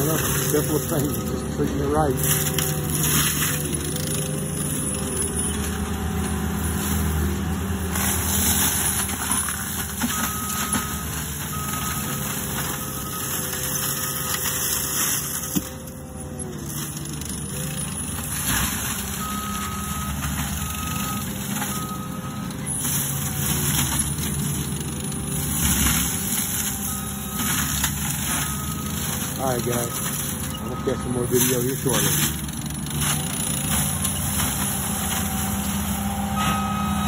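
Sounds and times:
back-up alarm beeping: 0:00.0 - 0:02.9, 0:10.0 - 0:14.6, 0:19.0 - 0:22.5, 0:26.0 - 0:32.3, 0:33.8 - 0:37.0
loader engine working: 0:00.0 - 0:37.0.

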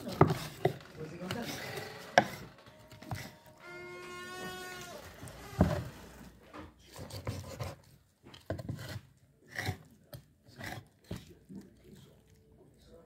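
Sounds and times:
knife chopping on wooden board: 0:00.0 - 0:03.3
soft knocks and scraping: 0:00.0 - 0:03.4, 0:04.1 - 0:12.1.

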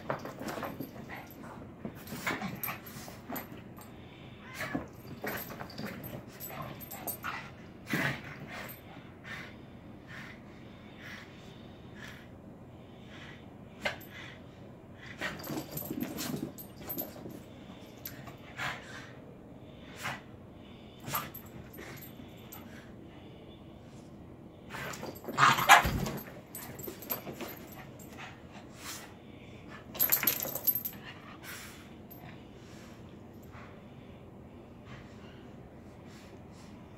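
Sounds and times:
collar tags jingling: 0:00.0 - 0:07.5, 0:15.2 - 0:18.3, 0:24.7 - 0:28.3, 0:29.9 - 0:31.1
dogs scuffling with cat: 0:00.0 - 0:08.8, 0:15.2 - 0:18.4, 0:24.7 - 0:29.0.

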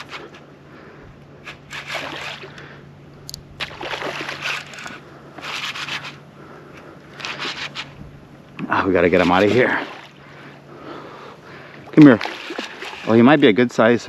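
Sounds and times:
water sloshing and splashing: 0:01.4 - 0:02.7, 0:03.5 - 0:06.3, 0:07.1 - 0:14.0.

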